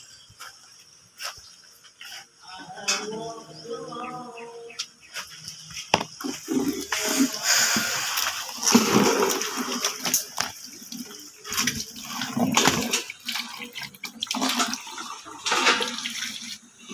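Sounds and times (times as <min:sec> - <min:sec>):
hose water splashing into bucket: 0:06.0 - 0:16.9.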